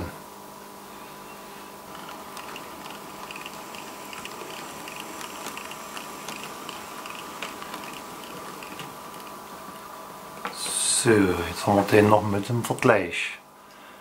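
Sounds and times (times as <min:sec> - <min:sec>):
steady hum: 0:00.0 - 0:14.0
model train wheels ticking: 0:01.9 - 0:09.3.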